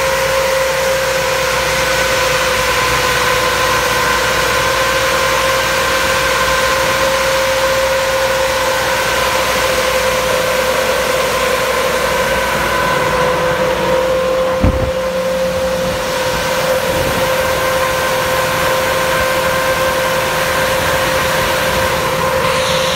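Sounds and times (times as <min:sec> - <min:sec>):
tractor vacuum running: 0:00.0 - 0:22.9
low thump: 0:14.6 - 0:15.2.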